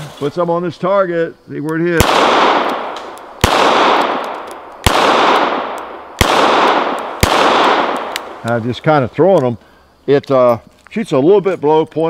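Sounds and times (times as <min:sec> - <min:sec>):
revolver shots with echo: 0:02.0 - 0:08.4.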